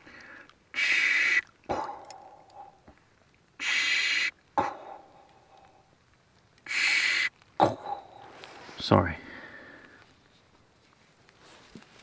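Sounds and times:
person breathing: 0.0 - 0.6, 7.8 - 10.2.

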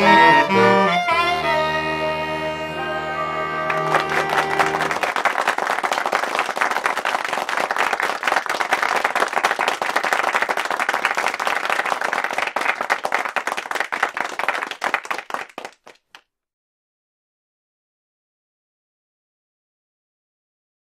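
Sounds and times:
audience applause: 3.3 - 16.2.

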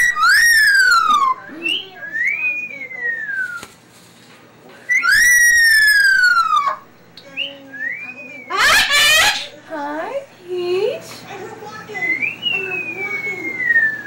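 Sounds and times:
cockatoo whistle-like calls: 0.0 - 3.7, 4.9 - 6.8, 12.0 - 14.0.

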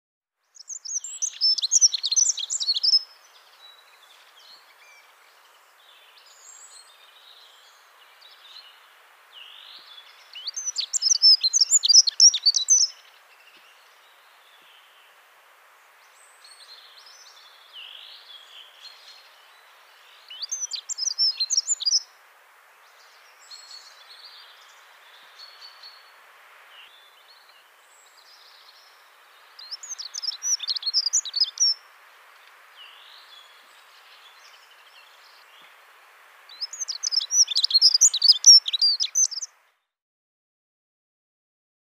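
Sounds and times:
faint steady hiss: 0.3 - 39.9
soft bird chirps: 0.5 - 15.2, 15.8 - 22.2, 22.8 - 39.9
bird warbling song: 0.6 - 15.1, 16.0 - 22.1, 26.7 - 31.8, 36.5 - 39.5.

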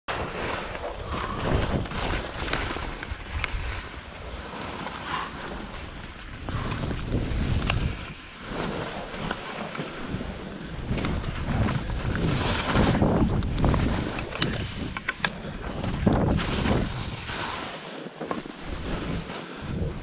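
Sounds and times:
skis scraping over snow: 0.1 - 20.0
wind rumbling on microphone: 0.1 - 20.0.

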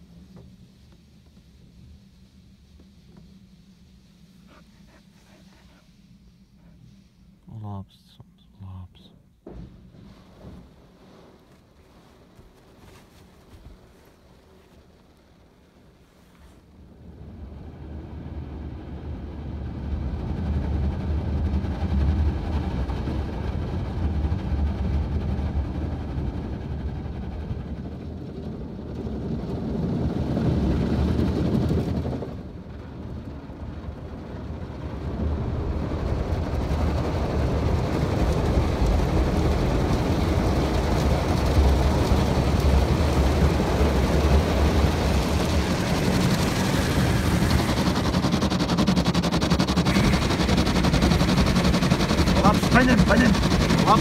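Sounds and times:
car wash water spray and brushes: 0.0 - 6.0, 9.8 - 16.8, 37.8 - 54.0.

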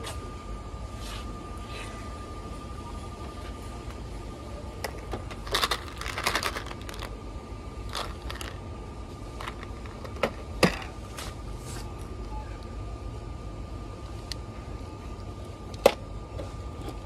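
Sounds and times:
low hum: 0.2 - 17.0
candy packages clicking and rattling: 4.9 - 7.1, 7.9 - 8.6, 9.4 - 10.9.

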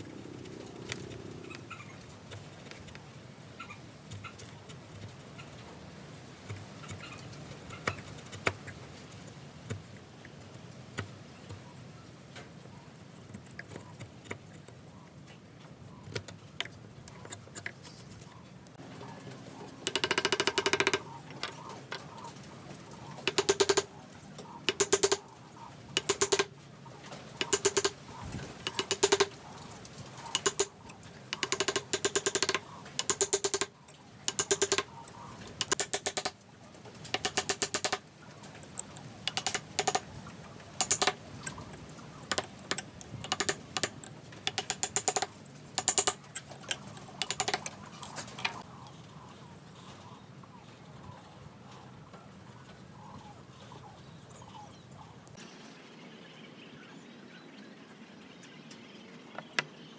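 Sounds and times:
chisel paring clicks: 23.2 - 23.9, 24.7 - 25.2, 26.0 - 26.5, 27.4 - 28.0, 28.6 - 29.3, 30.3 - 30.7, 31.3 - 33.7, 34.3 - 34.9, 35.6 - 36.3, 37.1 - 38.0, 38.8 - 40.0, 40.8 - 41.2, 42.3 - 46.2, 47.2 - 47.7.

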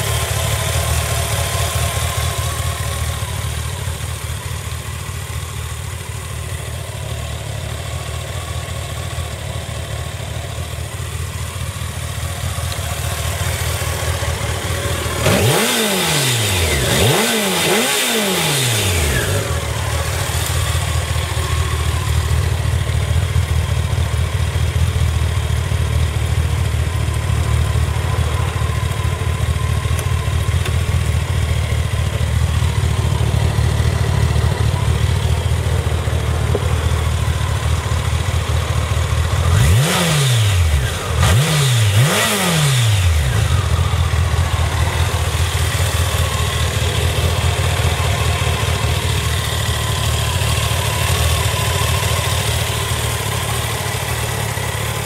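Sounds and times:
motorcycle engine idling: 0.0 - 55.0
engine revving: 13.3 - 22.9, 36.5 - 55.0.

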